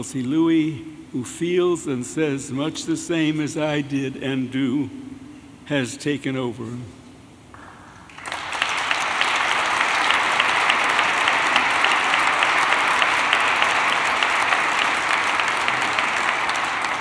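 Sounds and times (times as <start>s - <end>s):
audience applauding: 8.0s - 17.0s.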